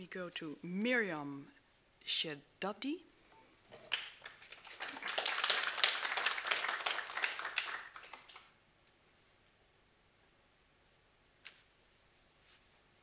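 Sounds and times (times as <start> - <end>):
small audience clapping: 3.8 - 8.6.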